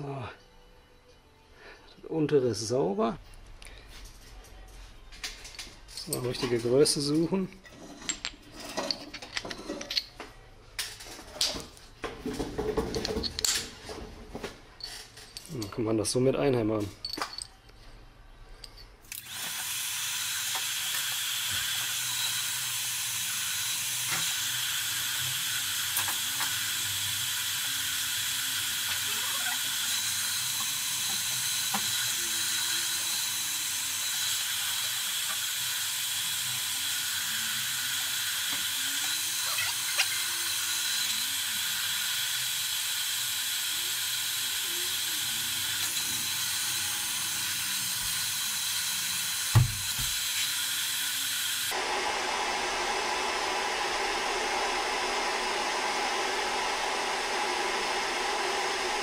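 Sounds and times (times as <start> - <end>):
heat gun blowing air: 19.1 - 59.0.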